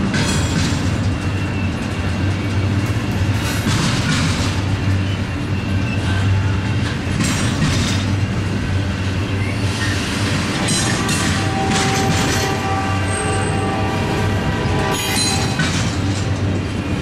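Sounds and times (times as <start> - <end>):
steel wheels rumbling on rails: 0.0 - 17.0.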